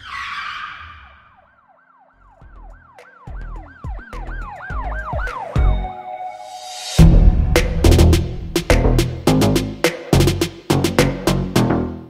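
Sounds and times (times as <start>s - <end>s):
siren wailing in quick sweeps: 0.0s - 2.4s, 3.0s - 7.6s
whoosh: 6.5s - 9.4s
heavy bass thuds of a beat: 7.0s - 11.9s.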